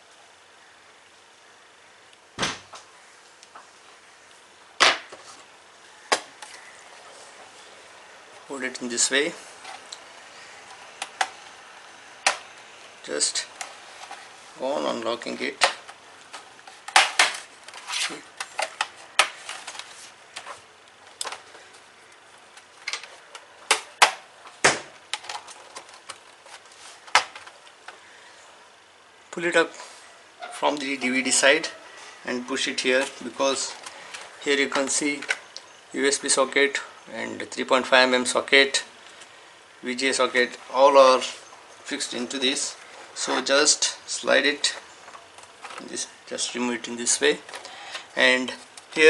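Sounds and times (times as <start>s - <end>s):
plastic clips snapping loose: 10.7s - 11.4s.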